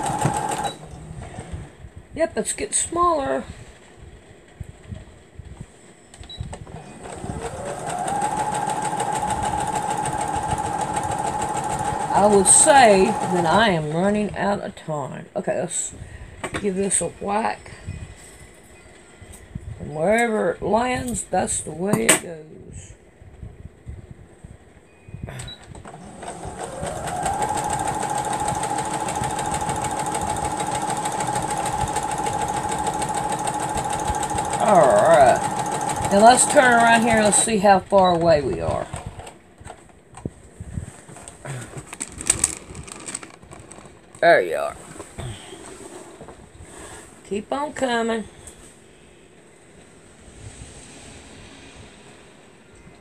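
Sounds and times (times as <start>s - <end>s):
sewing machine stitching: 0.0s - 1.6s, 6.7s - 13.8s, 25.9s - 39.1s.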